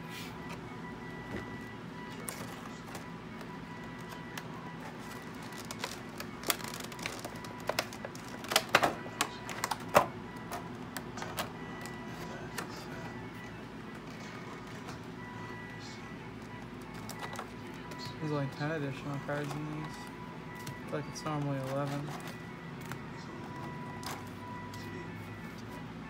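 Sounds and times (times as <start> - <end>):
plastic packaging crinkling: 3.9 - 9.9.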